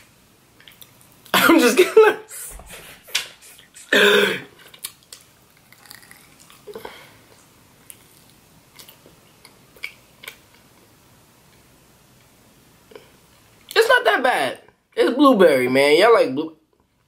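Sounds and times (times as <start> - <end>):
wet chewing smacks: 0.6 - 1.3, 4.8 - 10.7.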